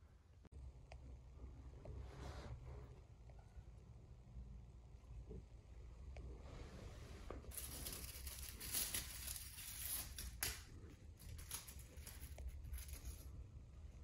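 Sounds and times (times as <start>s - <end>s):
rustling and crinkling handling: 6.5s - 13.3s.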